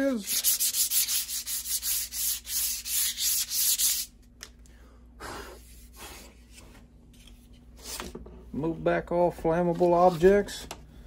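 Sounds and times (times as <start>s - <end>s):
sandpaper rasping on wood: 0.1s - 4.1s.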